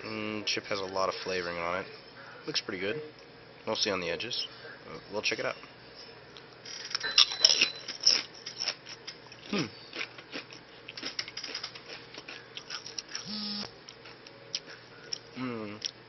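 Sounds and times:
chip crunching: 7.5s - 13.2s
short hum: 13.3s - 13.7s.

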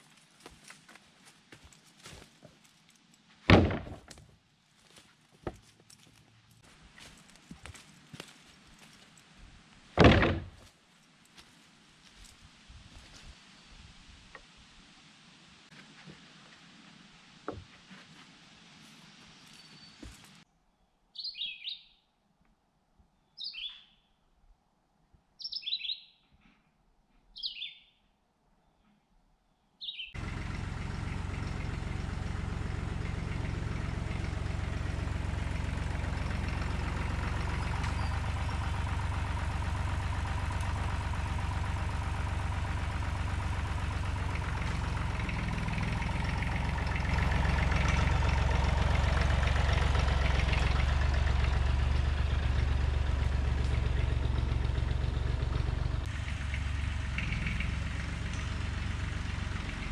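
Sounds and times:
tractor engine running: 2.9s - 4.2s, 4.8s - 10.7s, 30.2s - 59.9s
bird chirping: 19.4s - 22.1s, 23.1s - 24.2s, 25.4s - 26.4s, 27.3s - 30.2s, 37.4s - 38.7s.

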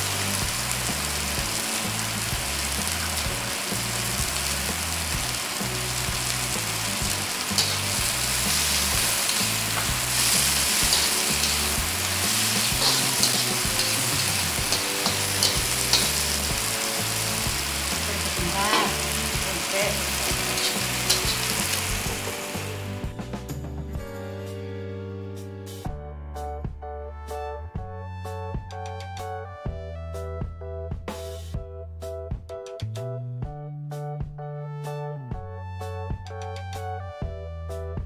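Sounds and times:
vegetables sizzling in hot oil: 0.0s - 23.1s
metal spatula scraping a wok: 7.4s - 19.2s, 19.8s - 22.5s.

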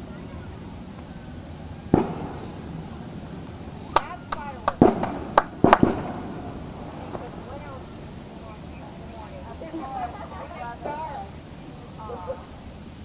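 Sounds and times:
falling firework whistles: 0.0s - 9.7s
firework cracks: 0.0s - 11.8s
fireworks banging: 0.0s - 13.0s.

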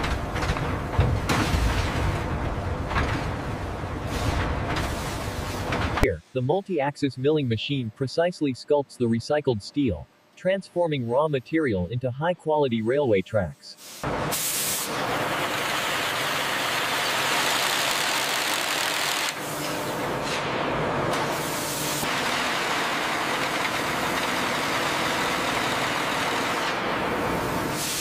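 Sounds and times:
low mechanical hum: 0.0s - 28.0s.

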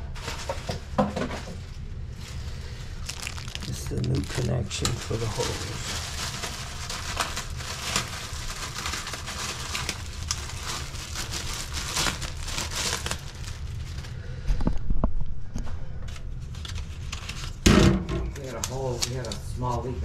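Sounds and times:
plastic packaging crinkling: 2.2s - 14.2s, 16.4s - 17.6s, 18.3s - 20.0s.

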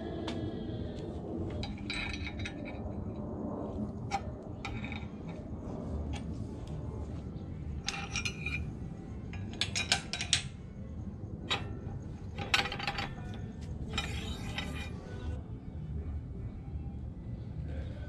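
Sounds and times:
steady low rumble: 0.0s - 18.0s
metal clinking and clicking: 1.6s - 3.0s, 7.8s - 10.7s, 11.4s - 15.2s.

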